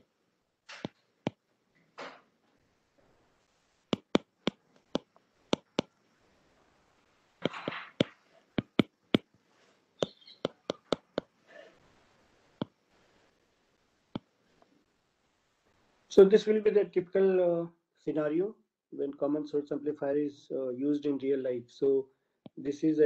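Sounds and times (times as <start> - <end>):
stylus tapping on glass screen: 3.9 - 5.9, 7.4 - 8.9, 10.0 - 11.3.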